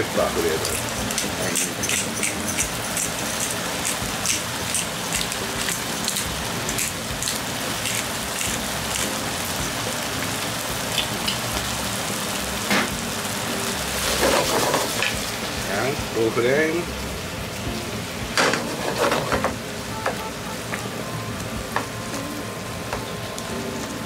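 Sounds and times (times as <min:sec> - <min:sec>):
sauce simmering and sizzling: 0:00.0 - 0:24.0.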